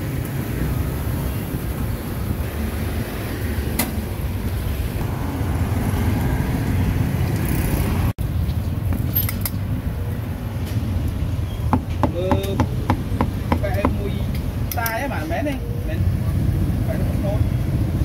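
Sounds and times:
motorbikes passing: 0.0s - 11.4s
street traffic rumble: 0.0s - 18.0s.

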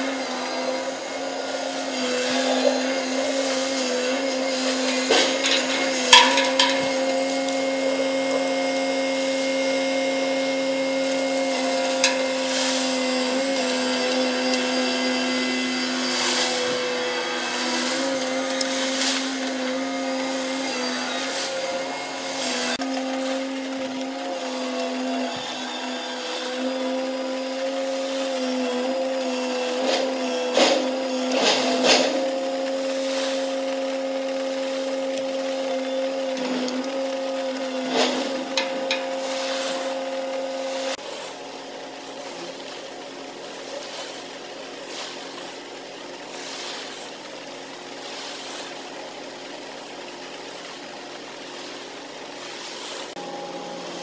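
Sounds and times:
crane machinery humming: 0.0s - 54.0s
sharp metal clanks: 4.2s - 8.5s.

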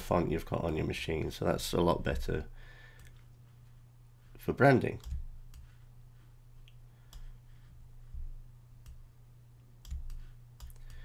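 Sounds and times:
steady low hum: 0.0s - 11.0s
soft low thumps: 7.5s - 9.1s
computer mouse clicks: 9.8s - 11.0s.

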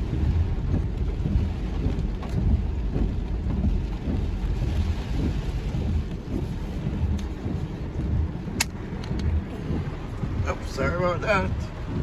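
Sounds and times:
car interior low rumble: 0.0s - 12.0s
rain hissing on car: 0.0s - 12.0s.

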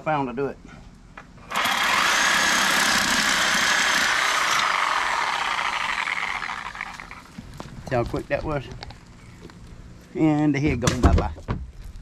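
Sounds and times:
reciprocating saw whine: 1.5s - 7.3s.

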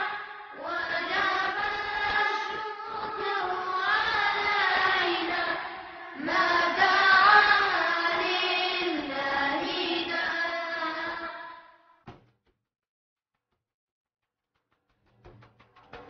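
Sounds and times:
person singing a slow chant: 0.0s - 11.7s.

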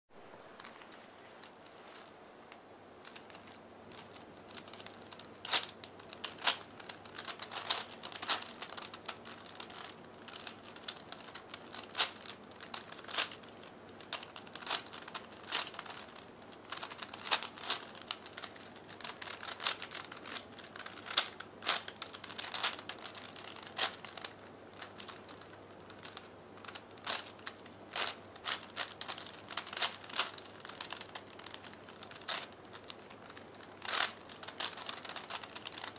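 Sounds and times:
puzzle cube plastic clicking: 3.0s - 35.9s.

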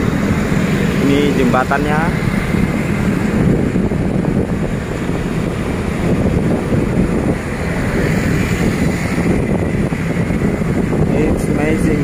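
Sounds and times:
motorcycle traffic road noise: 0.0s - 12.0s
wind rumbling on microphone: 0.0s - 12.0s.

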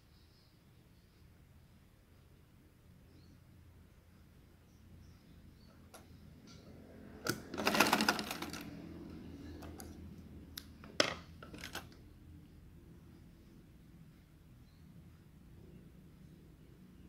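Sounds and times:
sewing machine clatter: 7.3s - 8.8s, 11.4s - 11.9s.

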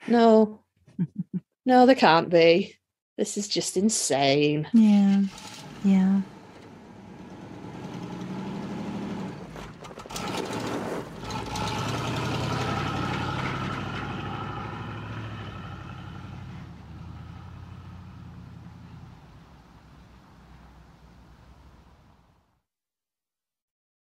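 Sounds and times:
car engine running: 5.3s - 22.2s.

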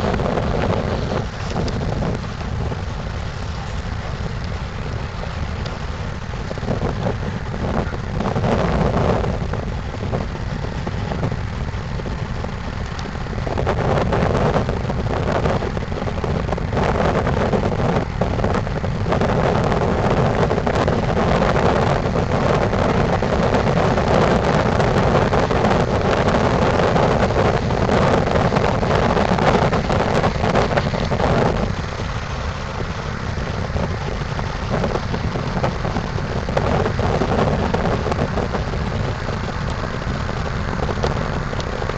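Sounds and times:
steady low rumble: 0.0s - 41.9s
wind buffeting microphone: 0.0s - 41.9s.

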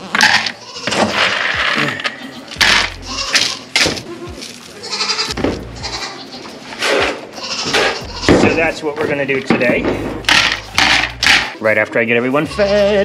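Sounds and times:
grain feed rattling into pitchers: 0.0s - 3.8s
goats bleating: 0.0s - 9.0s, 12.2s - 13.0s.

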